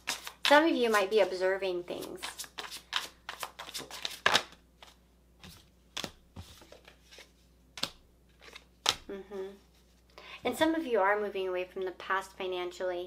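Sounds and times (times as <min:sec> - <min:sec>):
cards snapping on table: 0:07.8 - 0:09.0.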